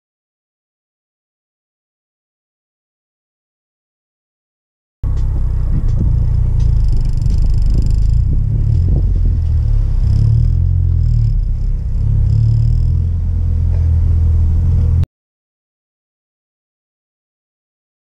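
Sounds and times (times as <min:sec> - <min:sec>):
car engine and road noise rumble: 0:05.0 - 0:15.1.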